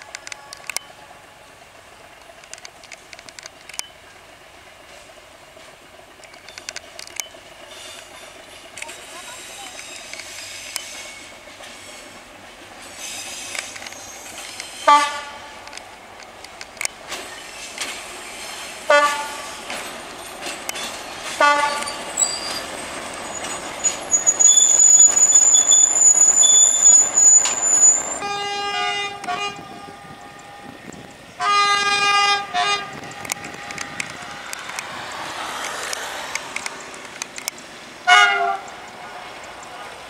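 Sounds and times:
train horn toots: 0.0s - 1.6s, 14.8s - 15.6s, 18.9s - 19.6s, 21.4s - 22.0s, 27.8s - 34.8s, 38.1s - 40.0s
steel wheel squeal: 7.6s - 12.2s, 12.8s - 15.0s, 19.6s - 31.0s
train horn blast: 14.8s - 15.6s, 18.9s - 19.6s, 21.4s - 22.0s, 28.2s - 34.8s, 38.0s - 40.0s.

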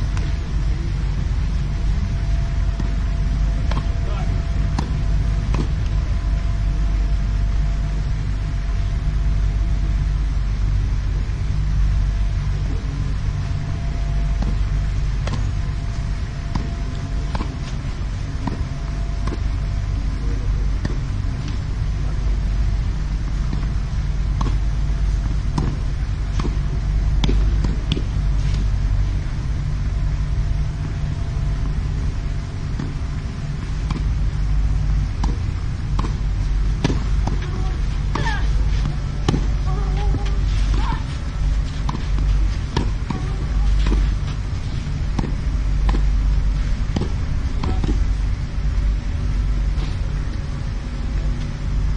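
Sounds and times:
low background rumble: 0.0s - 51.9s
tennis ball bouncing: 4.7s - 6.0s, 16.5s - 17.8s, 20.8s - 21.6s, 24.4s - 28.1s, 33.6s - 34.2s, 35.2s - 46.2s, 46.8s - 48.2s
tennis racket hitting ball: 4.7s - 6.0s, 16.5s - 17.8s, 24.4s - 24.6s, 25.2s - 28.1s, 35.2s - 46.2s.

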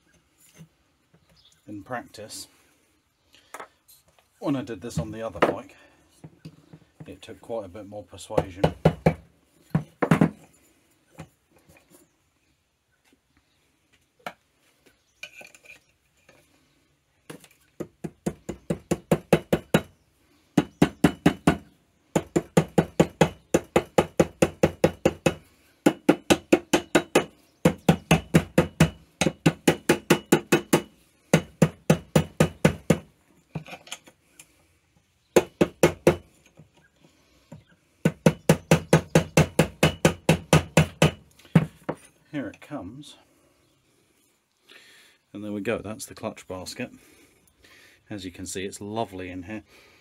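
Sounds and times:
wooden mallet hammering metal: 8.4s - 9.2s, 17.8s - 19.9s, 20.6s - 33.1s, 35.4s - 36.2s, 38.0s - 42.0s.

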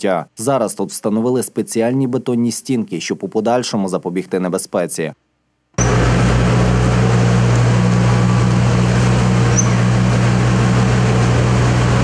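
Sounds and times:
excavator diesel engine running: 5.8s - 12.0s.

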